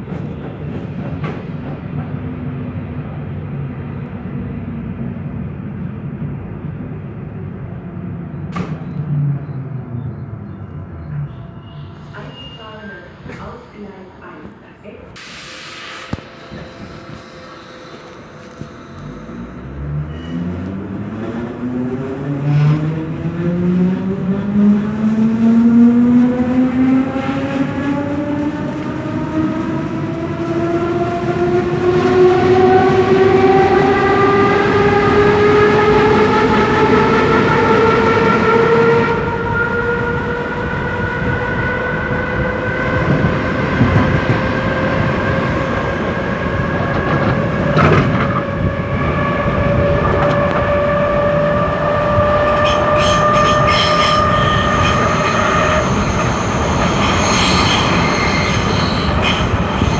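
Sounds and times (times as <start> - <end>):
knocks from the track: 8.5 - 8.9.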